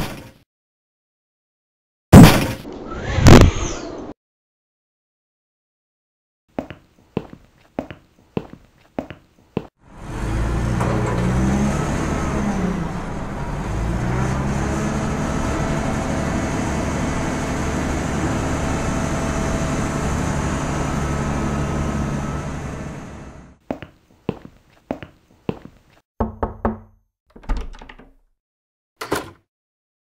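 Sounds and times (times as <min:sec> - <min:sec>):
engine revving: 0:09.8 - 0:23.6.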